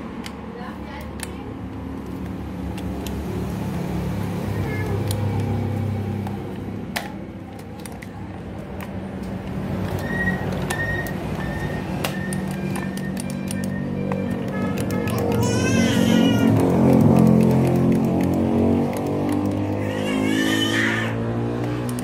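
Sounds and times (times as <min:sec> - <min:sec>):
sharp clicks: 0:06.2 - 0:15.6, 0:16.4 - 0:19.8, 0:21.6 - 0:22.0.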